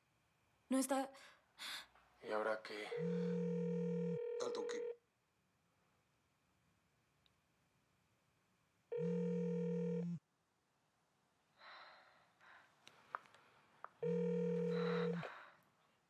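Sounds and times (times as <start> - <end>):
electronic phone ringtone: 2.9 - 5.0, 9.0 - 10.2, 14.0 - 15.2.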